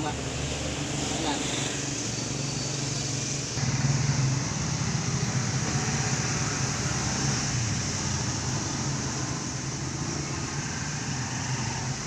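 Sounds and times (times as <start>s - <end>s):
road traffic noise: 0.0s - 12.0s.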